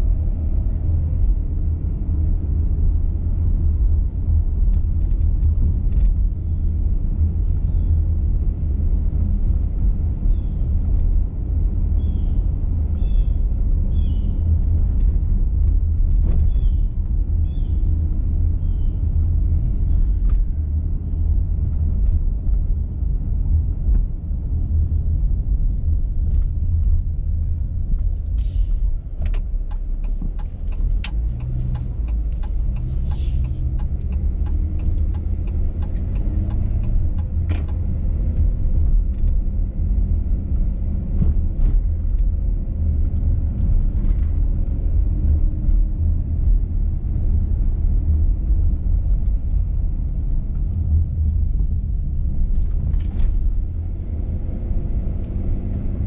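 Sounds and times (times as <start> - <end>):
car engine rumble: 0.0 - 56.0
road noise: 0.0 - 56.0
sharp clicks and rattles: 29.2 - 39.4.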